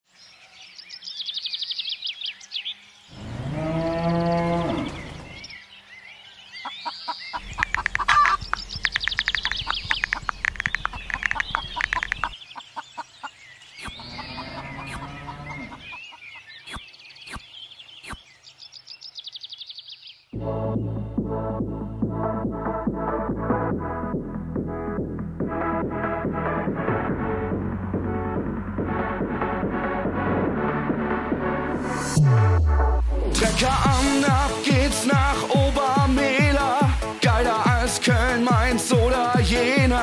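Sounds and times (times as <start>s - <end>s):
cow mooing: 3.1s - 5.2s, 14.0s - 15.8s
sharp clicks: 7.4s - 12.3s
rapid clicking and chirping: 7.4s - 12.4s.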